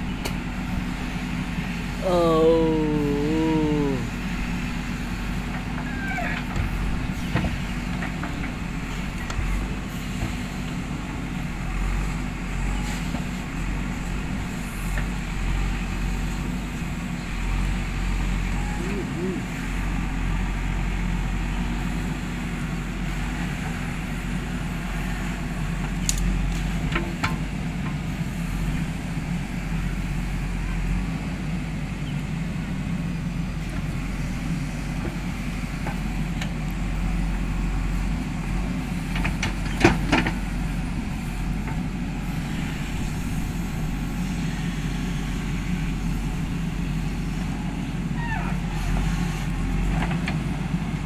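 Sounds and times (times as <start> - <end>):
diesel engine running: 0.0 - 51.0.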